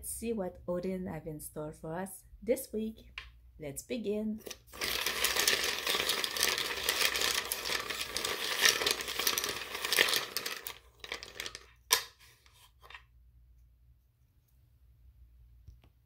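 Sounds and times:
small hard pieces rattling: 4.4s - 12.2s.

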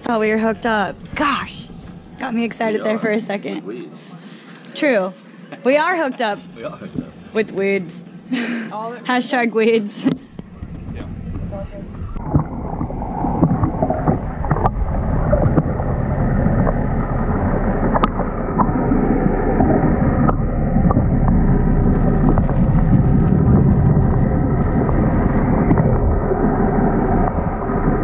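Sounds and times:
muffled underwater churning: 0.0s - 2.8s, 10.2s - 28.0s.

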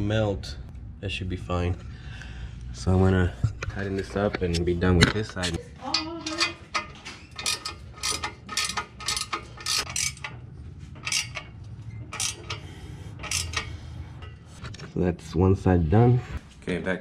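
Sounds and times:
ratchet wrench clicking: 5.9s - 10.4s, 11.0s - 13.9s.

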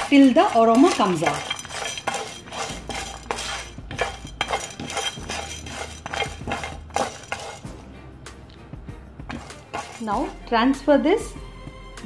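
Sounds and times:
spatula scraping lentils in pan: 0.0s - 7.8s, 9.3s - 10.4s.

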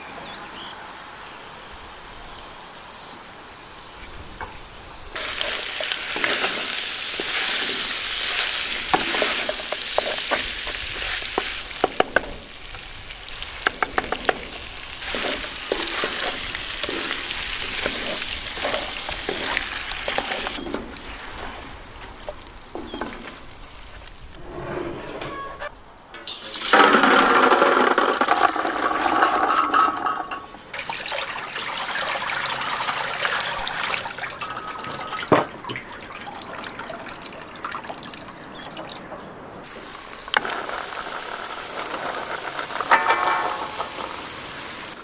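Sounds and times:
meat sizzling in a pot: 4.8s - 24.3s, 39.6s - 45.0s.

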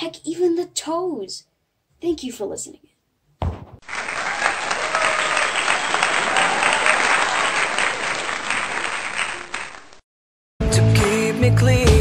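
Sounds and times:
crowd applauding: 3.8s - 10.0s.

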